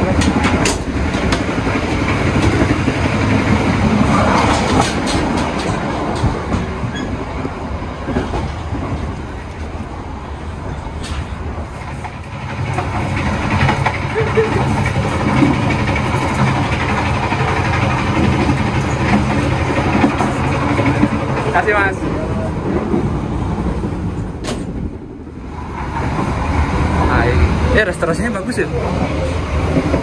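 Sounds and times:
sharp clicks and clanks: 0.0 - 7.1, 11.9 - 21.6
train wheels rumbling on track: 0.0 - 30.0.

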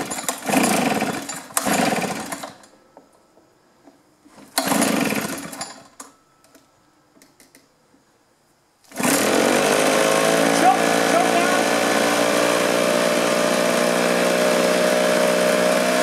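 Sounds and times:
leaf blower engine starting: 0.0 - 2.7, 4.4 - 5.9, 8.8 - 16.0.

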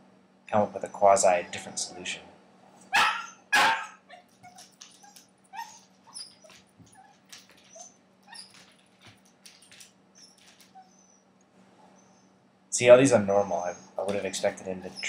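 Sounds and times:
puppy whimpering: 2.9 - 11.2, 13.6 - 15.0
clicks and scratches: 4.2 - 10.9, 14.0 - 15.0.

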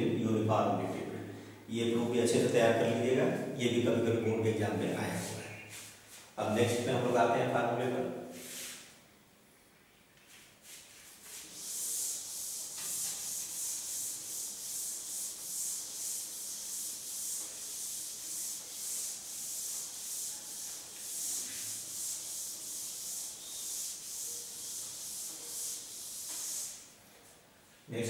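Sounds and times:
duster rubbing on chalkboard: 8.4 - 8.9, 10.3 - 27.4.

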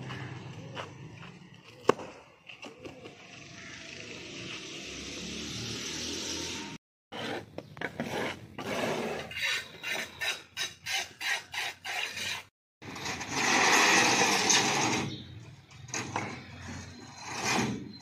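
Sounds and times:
rasping scrapes: 7.1 - 15.0.

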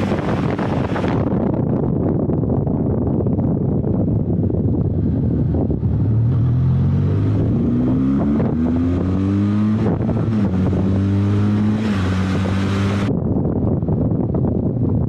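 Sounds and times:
motorcycle engine accelerating: 0.0 - 2.0, 3.2 - 15.0.

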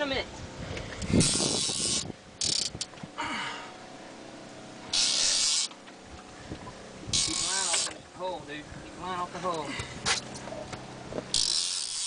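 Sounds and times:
fishing reel drag buzzing: 1.0 - 2.9, 4.9 - 5.8, 7.1 - 8.0, 11.3 - 12.0.

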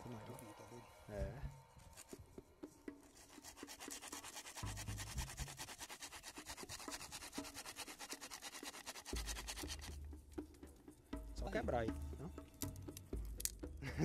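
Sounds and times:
hand saw cutting wood: 3.0 - 10.0.

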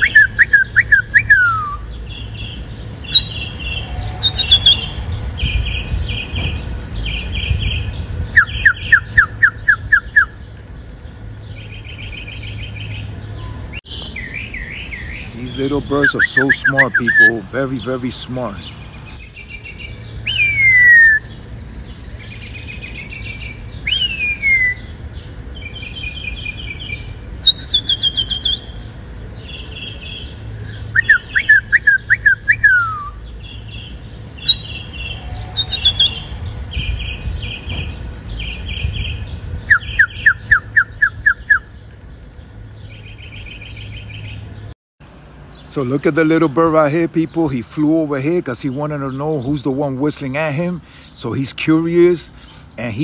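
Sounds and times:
mockingbird singing: 0.0 - 44.7, 45.4 - 53.0.

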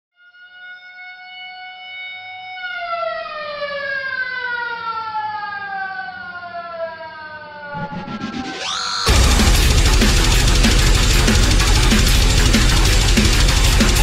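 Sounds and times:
siren-like wail: 0.1 - 14.0
rising whoosh: 7.7 - 12.2.

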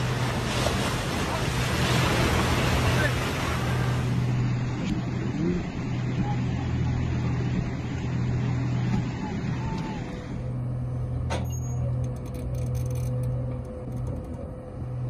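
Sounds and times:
rushing floodwater: 0.0 - 10.3
dark ominous music drone: 4.2 - 15.0.

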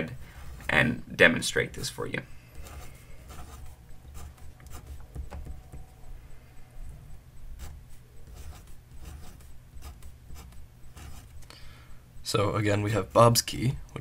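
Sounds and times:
pen scratching on paper: 2.5 - 5.2, 7.6 - 11.4.

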